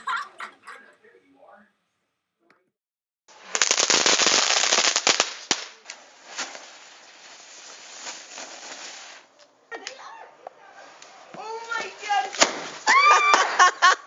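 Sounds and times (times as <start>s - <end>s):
crackling fizz: 3.3s - 9.5s
firecrackers crackling: 3.3s - 10.1s, 10.8s - 14.0s
firecracker bangs: 12.3s - 13.6s.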